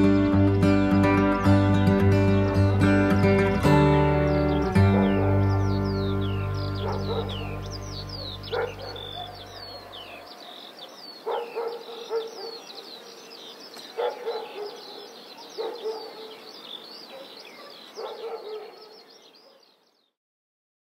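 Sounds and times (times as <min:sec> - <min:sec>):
birds chirping and whistling: 0:00.3 - 0:20.1
dog barking: 0:04.9 - 0:05.3, 0:06.8 - 0:07.6, 0:08.2 - 0:10.6, 0:11.2 - 0:12.8, 0:13.9 - 0:16.4, 0:17.0 - 0:19.7.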